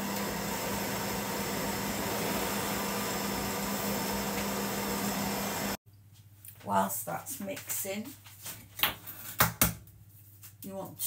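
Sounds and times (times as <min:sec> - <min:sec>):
stand mixer motor humming: 0:00.0 - 0:05.8.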